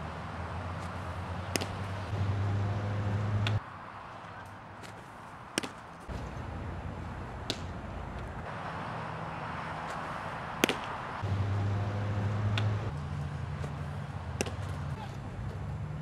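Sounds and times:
outdoor background noise: 0:00.0 - 0:16.0
baseball popping into a mitt: 0:00.8 - 0:01.8, 0:04.8 - 0:06.3, 0:07.4 - 0:08.3, 0:10.6 - 0:11.0, 0:12.5 - 0:12.8, 0:14.4 - 0:14.8.

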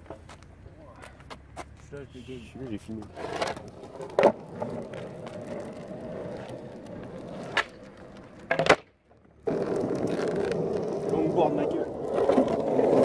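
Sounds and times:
longboard wheels rolling on asphalt: 0:00.0 - 0:13.0
board clacking on ground: 0:07.5 - 0:08.9.

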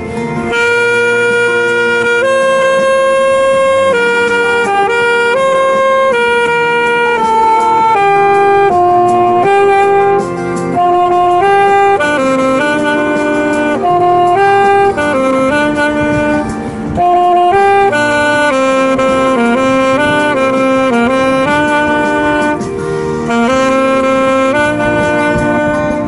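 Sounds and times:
saxophone slow melody: 0:00.0 - 0:26.0.

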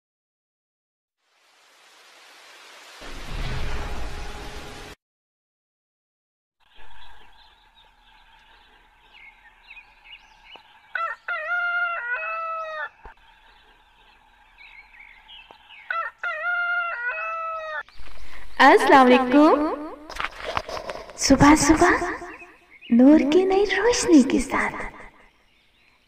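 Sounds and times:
small birds chirping: 0:06.6 - 0:26.0
rooster crowing: 0:10.8 - 0:13.1, 0:15.7 - 0:17.9.

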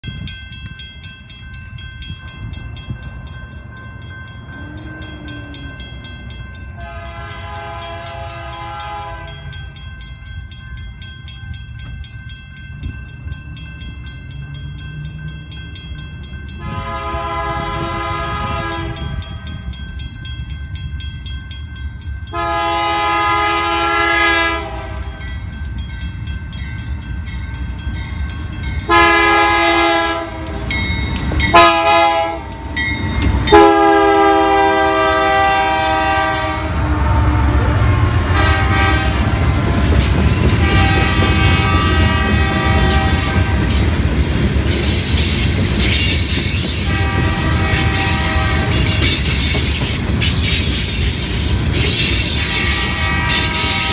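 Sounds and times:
low rumble of oncoming train: 0:00.0 - 0:53.9
locomotive air horn blasts: 0:06.8 - 0:09.5, 0:16.6 - 0:19.3, 0:22.3 - 0:25.2, 0:28.9 - 0:30.6, 0:31.5 - 0:32.5, 0:33.5 - 0:43.6, 0:46.8 - 0:49.0, 0:52.5 - 0:53.9.

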